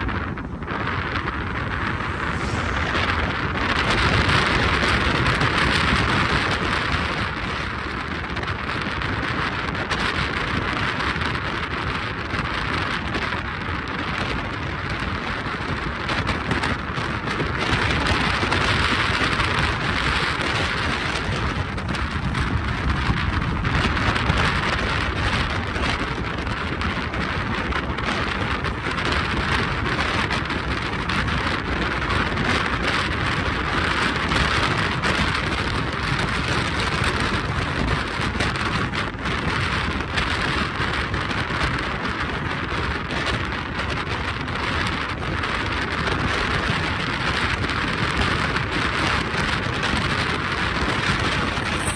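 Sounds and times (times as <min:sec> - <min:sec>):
car tyres hissing on road: 0:00.2 - 0:08.8, 0:48.6 - 0:51.9.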